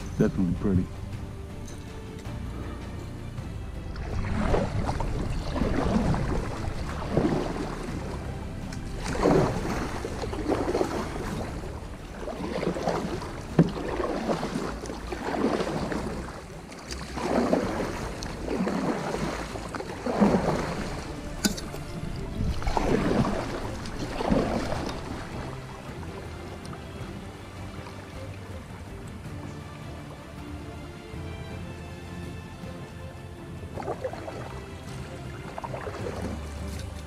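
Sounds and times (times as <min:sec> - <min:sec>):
low wind rumble on microphone: 0:00.0 - 0:30.0
paddle splashing and dripping: 0:00.0 - 0:37.0.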